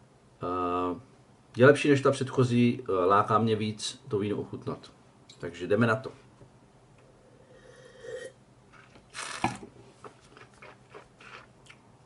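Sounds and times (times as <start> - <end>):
person slurping wine: 7.4 - 9.6.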